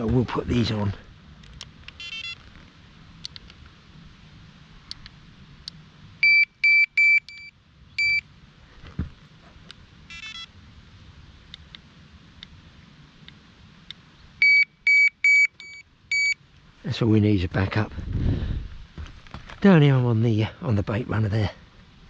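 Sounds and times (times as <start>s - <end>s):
bite alarm beeping: 2.0s - 2.4s, 6.2s - 8.2s, 10.1s - 10.5s, 14.4s - 16.4s.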